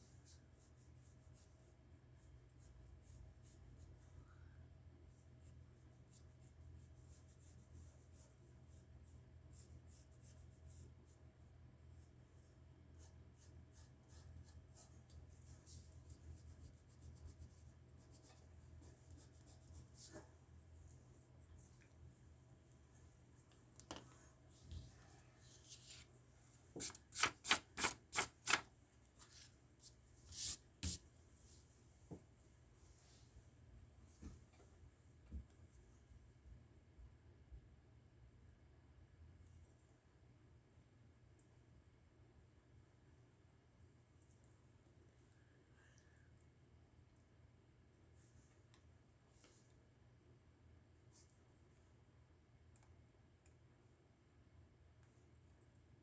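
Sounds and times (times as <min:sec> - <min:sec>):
low steady hum: 0:00.0 - 0:26.8
pencil scratching on paper: 0:11.9 - 0:20.3, 0:26.8 - 0:28.6.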